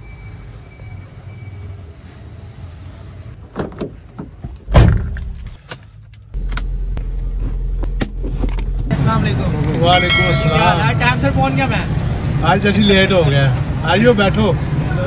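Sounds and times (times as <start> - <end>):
low car engine hum: 6.2 - 12.6.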